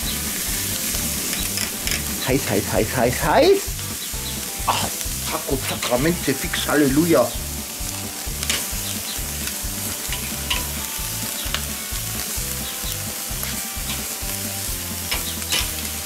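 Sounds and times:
fat dripping onto hot coals: 0.0 - 16.0
meat sizzling on a grill: 0.0 - 16.0.

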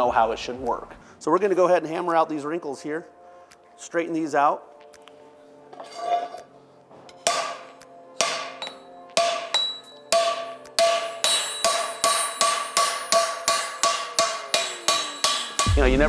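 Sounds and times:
hammer striking ringing steel pan: 7.1 - 16.0.

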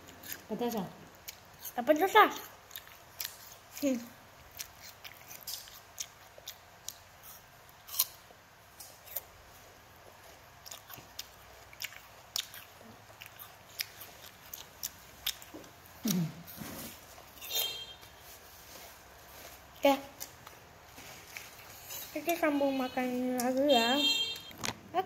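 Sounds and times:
child chewing crisp pear: 0.0 - 23.7
low hum-like vocal sound: 16.0 - 16.9.

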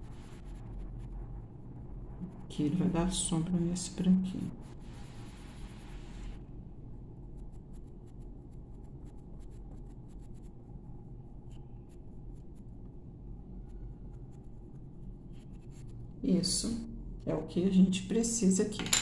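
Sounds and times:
pencil scratching on paper: 0.0 - 1.2, 4.3 - 6.4, 7.4 - 10.6, 13.6 - 16.0
steady low hum: 0.0 - 19.0.

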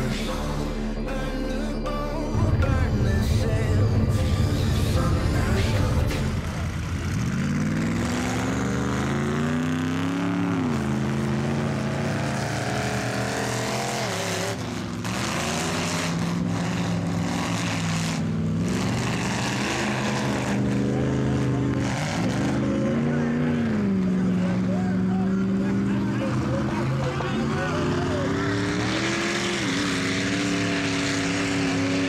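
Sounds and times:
truck engines revving: 0.0 - 32.0
tyres churning through mud: 5.6 - 32.0.

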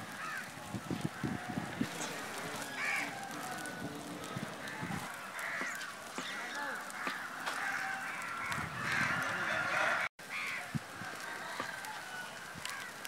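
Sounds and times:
wood fire crackling: 0.0 - 13.0
birds calling: 0.1 - 13.0.

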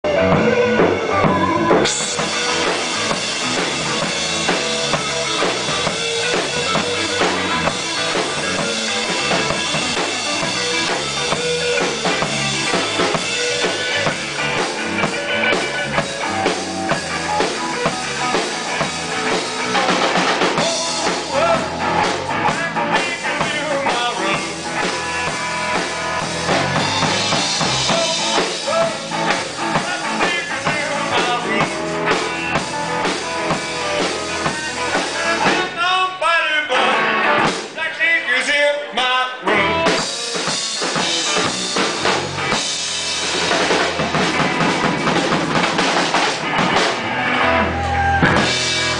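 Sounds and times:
drum kit: 0.0 - 36.2, 36.8 - 37.9, 39.5 - 48.9
electric bass: 0.0 - 38.0, 39.4 - 48.9
electric guitar: 0.0 - 48.9
man singing into microphone: 20.6 - 21.8, 22.5 - 24.7, 27.9 - 29.1, 29.8 - 31.8, 35.1 - 40.1.

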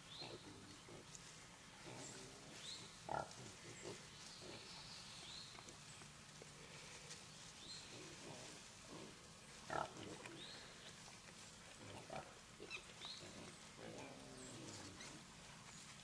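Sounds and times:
hogs grunting softly: 0.1 - 5.8, 7.8 - 15.6.

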